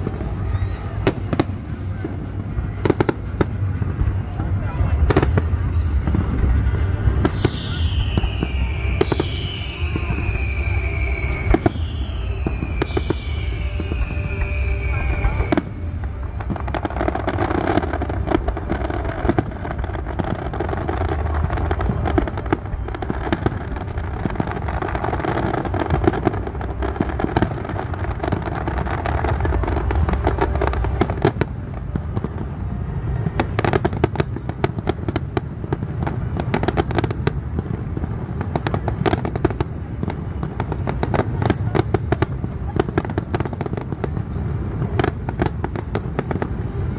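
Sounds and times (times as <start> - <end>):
fireworks booming and crackling: 0.0 - 46.9
music playing: 0.0 - 46.9
falling whistle: 7.2 - 16.4.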